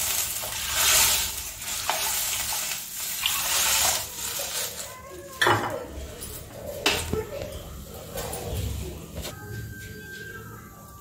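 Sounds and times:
water sizzling in a hot pan: 0.0s - 6.2s.

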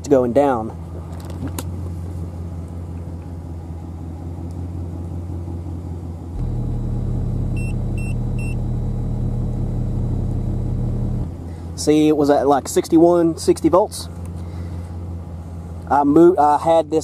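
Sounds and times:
low steady rumble: 0.0s - 17.0s
subwoofer test tone: 6.4s - 11.3s
multimeter beeps: 7.5s - 8.7s.

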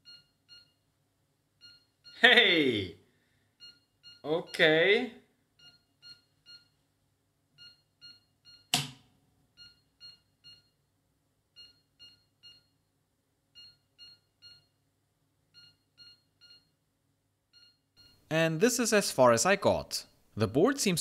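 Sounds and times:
short electronic beeps: 3.6s - 4.8s, 11.6s - 12.8s, 17.6s - 18.2s.

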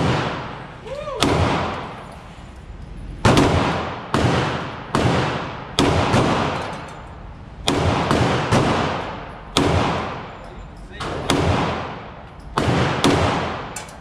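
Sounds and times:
pistol shots echoing: 0.0s - 2.0s, 3.2s - 6.8s, 7.6s - 10.4s, 11.0s - 13.9s.

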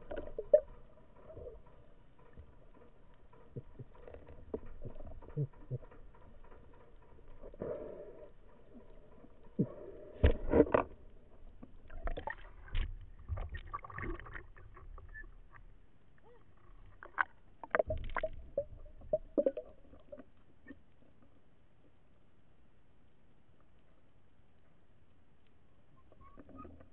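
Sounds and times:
water sloshing and splashing: 0.0s - 5.9s, 8.2s - 20.8s
knocks and bumps: 0.0s - 13.8s.

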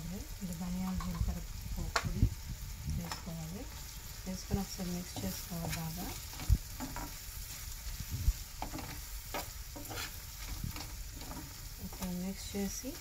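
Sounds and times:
food sizzling in a frying pan: 0.0s - 13.0s
spoon scraping and knocking pan: 3.0s - 13.0s.

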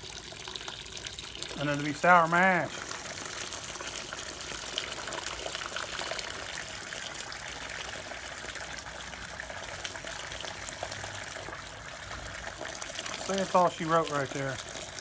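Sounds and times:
liquid gushing into a bucket: 0.0s - 15.0s
liquid splashing on foam: 0.0s - 15.0s.

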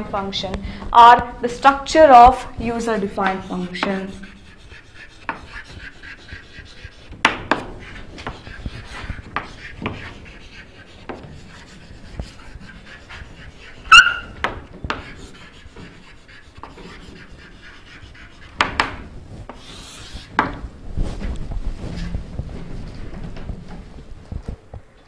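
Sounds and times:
chalk writing on a blackboard: 2.0s - 21.9s
chalk squeak: 13.8s - 14.4s.

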